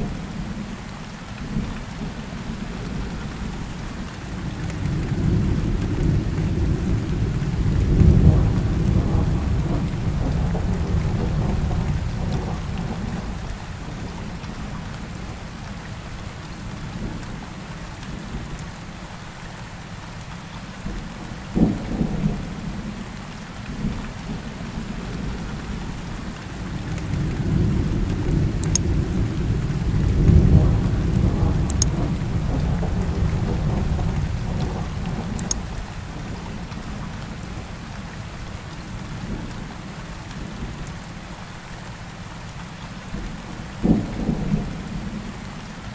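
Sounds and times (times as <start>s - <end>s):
steady rain: 0.0s - 45.9s
thunder rolling: 26.8s - 36.4s.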